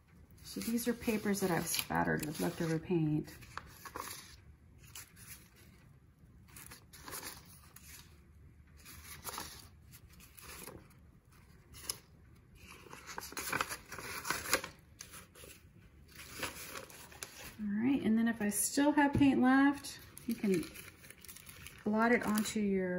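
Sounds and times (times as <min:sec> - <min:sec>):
paper sheets rustling: 0:00.4 - 0:05.8, 0:06.5 - 0:08.2, 0:08.8 - 0:17.6, 0:20.0 - 0:22.7.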